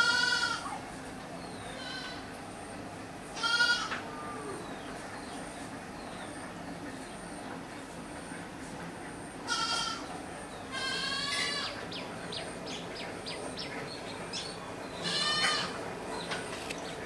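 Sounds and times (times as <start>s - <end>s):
animal high-pitched cries: 0.0s - 0.8s, 3.4s - 4.6s, 10.7s - 11.8s, 15.0s - 15.8s.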